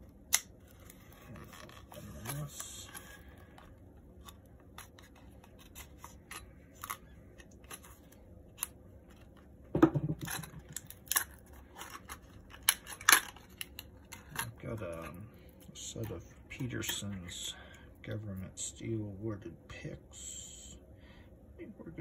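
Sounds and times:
plastic crackling: 0.0s - 9.5s, 10.2s - 17.2s
knife cutting plastic packaging: 0.2s - 9.4s, 10.2s - 15.1s.

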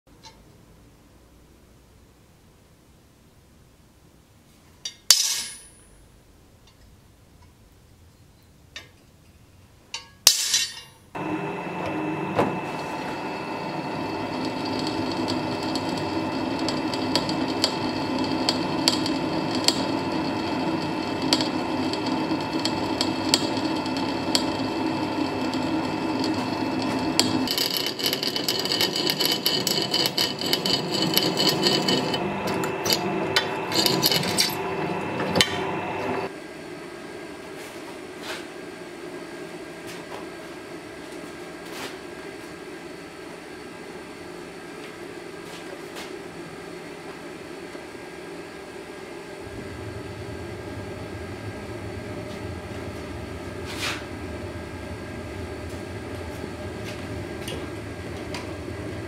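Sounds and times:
drill press drilling steel: 11.2s - 36.3s, 49.4s - 59.0s
quiet steady rushing: 49.3s - 59.0s.

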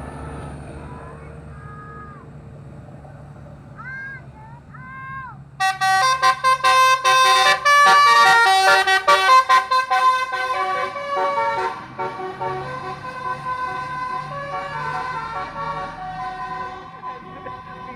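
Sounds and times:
multi-tone air horn melody: 5.6s - 17.9s.

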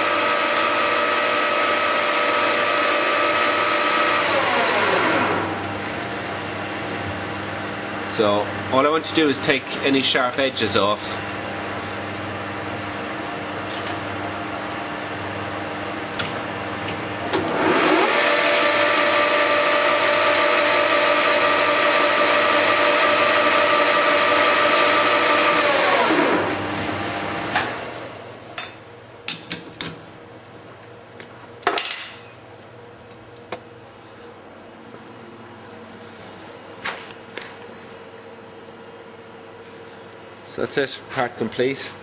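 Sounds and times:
lathe spindle whining: 0.0s - 6.7s, 17.3s - 27.8s.

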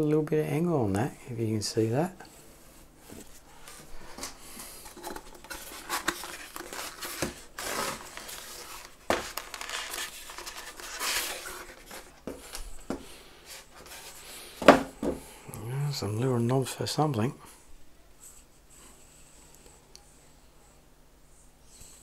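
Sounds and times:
knocks on tabletop: 14.6s - 15.2s.

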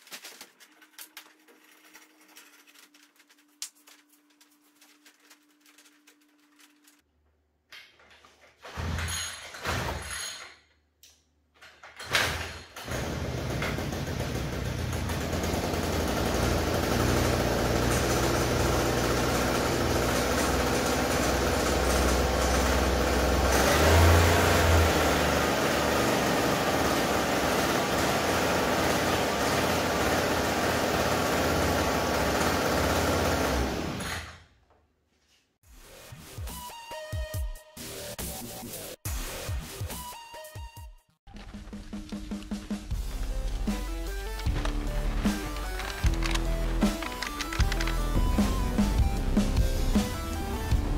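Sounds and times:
small petrol engine starting and running: 12.2s - 34.5s, 41.3s - 50.9s.

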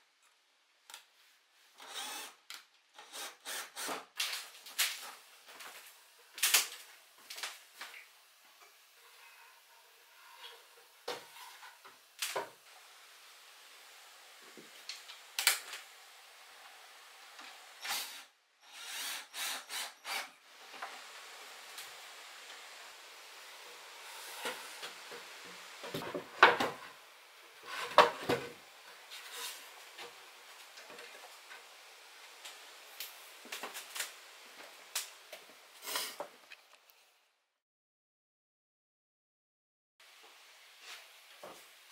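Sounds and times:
boards tapping and rubbing on wood: 25.8s - 26.8s, 27.7s - 28.6s
wooden boards clunking: 25.8s - 26.8s, 27.7s - 28.6s.

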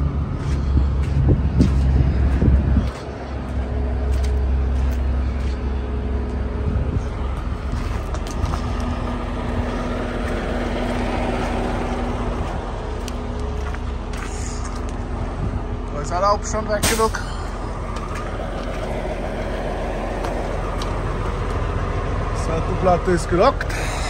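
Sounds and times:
diesel engine idling: 0.0s - 24.0s.

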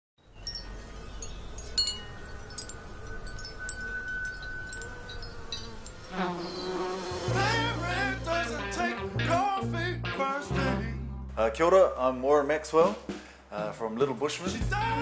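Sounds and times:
chimes ringing: 0.2s - 6.8s
music: 6.2s - 15.0s.

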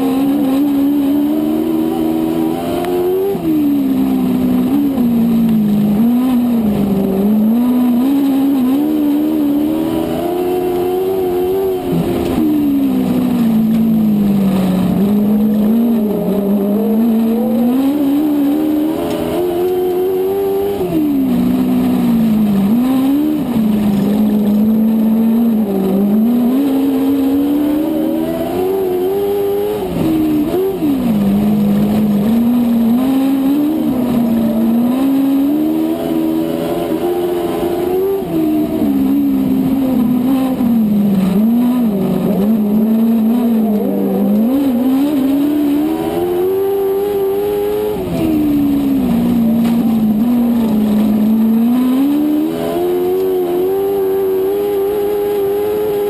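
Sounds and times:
race car engine accelerating: 0.0s - 56.0s.

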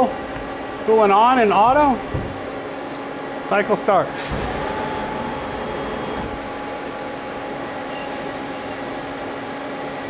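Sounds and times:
lathe machine hum: 4.2s - 7.8s.

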